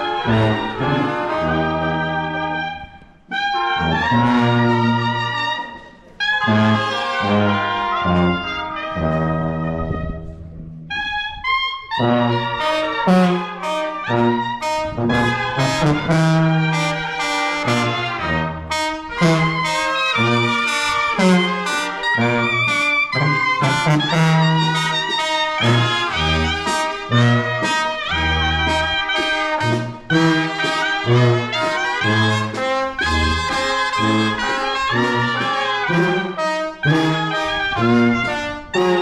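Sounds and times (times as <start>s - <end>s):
brass band playing: 0.0s - 39.0s.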